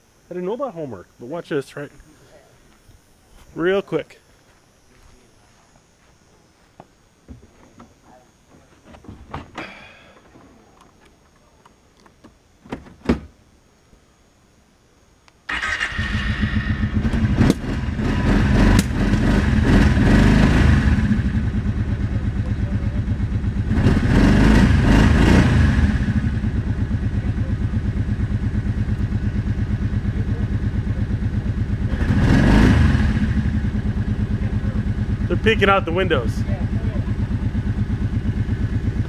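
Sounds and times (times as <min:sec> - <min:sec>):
atv engine starting and idling: 0:15.5 - 0:39.0.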